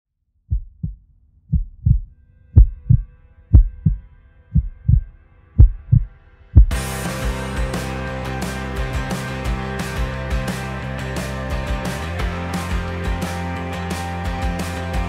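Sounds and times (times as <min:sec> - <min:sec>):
heartbeat thumps: 0:00.5 - 0:04.0, 0:04.6 - 0:06.8.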